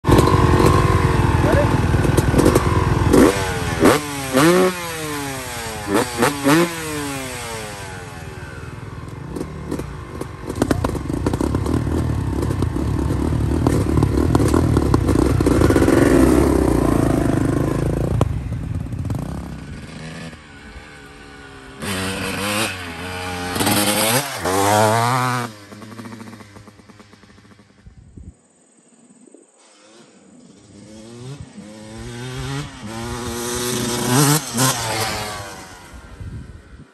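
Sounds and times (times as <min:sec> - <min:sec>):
two-stroke motorcycle engine revving: 0:00.0 - 0:27.8, 0:29.7 - 0:36.5.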